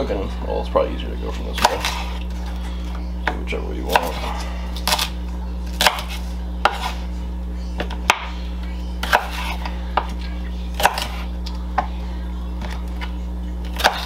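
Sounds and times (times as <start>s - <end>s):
low hum: 0.0s - 14.0s
knife chopping on wooden board: 1.6s - 2.2s, 3.2s - 5.1s, 5.8s - 7.0s, 9.0s - 10.2s, 10.8s - 11.2s, 13.7s - 14.0s.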